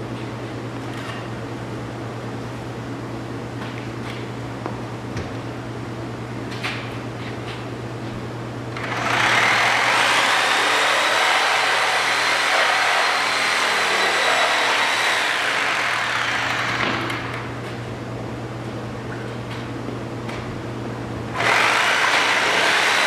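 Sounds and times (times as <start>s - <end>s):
reciprocating saw cutting wood: 8.8s - 17.1s, 21.4s - 23.0s.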